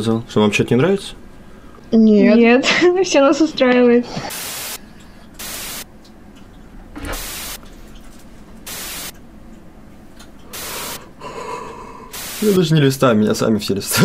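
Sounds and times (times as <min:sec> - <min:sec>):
white-noise static hiss: 0:04.3 - 0:14.0.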